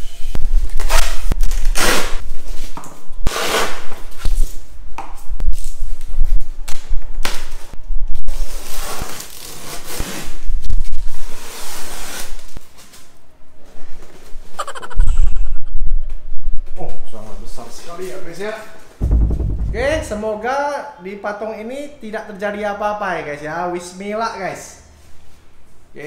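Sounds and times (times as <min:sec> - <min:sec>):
knocks: 0:19.0 - 0:20.4.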